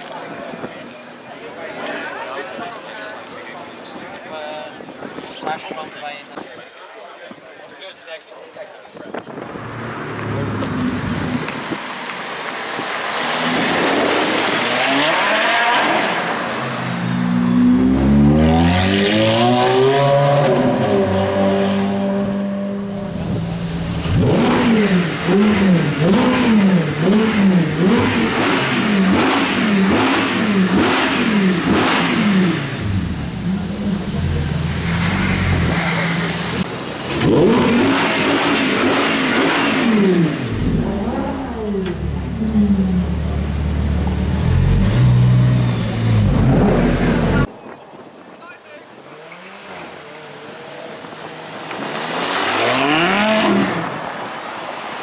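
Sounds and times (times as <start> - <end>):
rushing noise: 9.3 - 27.2, 30.0 - 42.2
car engine revving: 9.3 - 47.5, 49.1 - 54.1.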